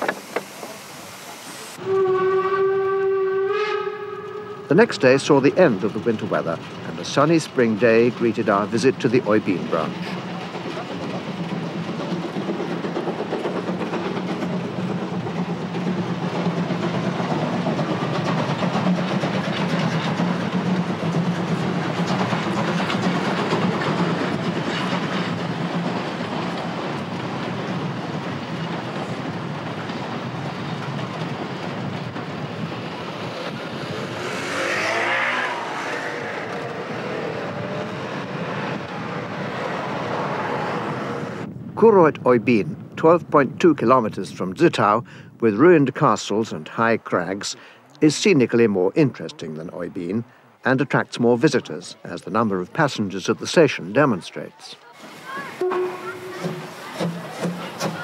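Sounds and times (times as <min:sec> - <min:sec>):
train rumbling on rails: 0:00.0 - 0:41.8, 0:55.0 - 0:58.0
car passing: 0:32.4 - 0:41.5.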